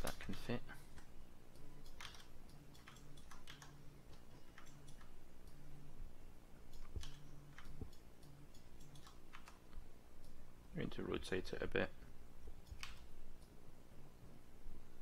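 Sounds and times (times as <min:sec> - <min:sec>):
low background hum: 0:00.0 - 0:15.0
mouse and keyboard clicks: 0:01.0 - 0:05.1, 0:06.7 - 0:09.6, 0:12.6 - 0:13.5.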